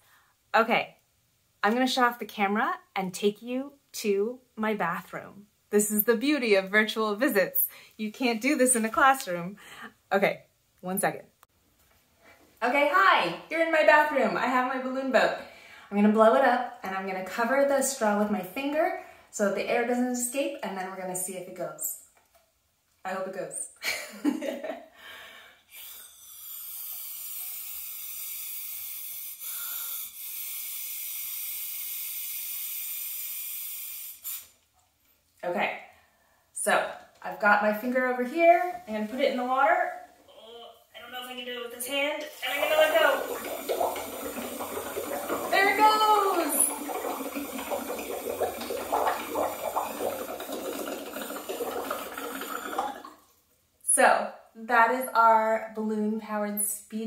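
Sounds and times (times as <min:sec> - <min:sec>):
blowing air through a straw: 0:25.6 - 0:34.6
air bubbling under water: 0:42.5 - 0:53.1.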